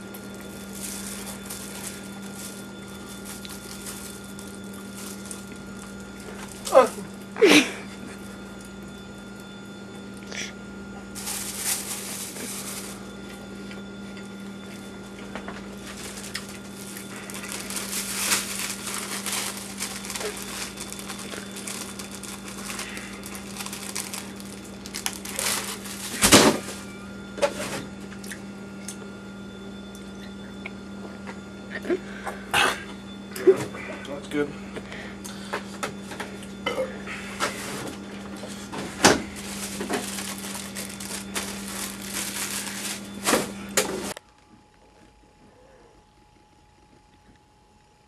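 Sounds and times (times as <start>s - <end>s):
steady low hum: 0.0s - 48.0s
rustling handling noises: 0.3s - 7.1s, 11.2s - 13.4s, 15.8s - 26.8s, 37.4s - 44.2s.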